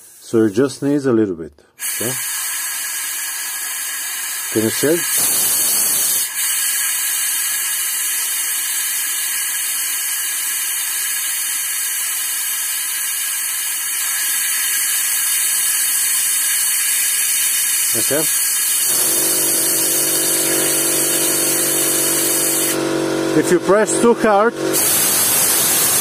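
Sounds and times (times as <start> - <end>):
compressed air tool hissing: 0.0 - 0.6, 1.8 - 22.8, 24.7 - 26.0.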